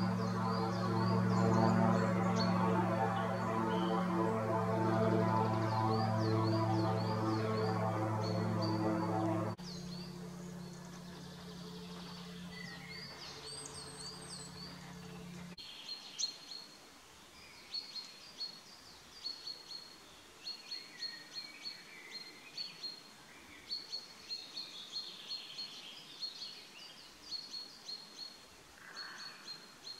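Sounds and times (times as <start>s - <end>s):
low hum: 0.0s - 15.6s
songbirds chirping: 0.0s - 29.9s.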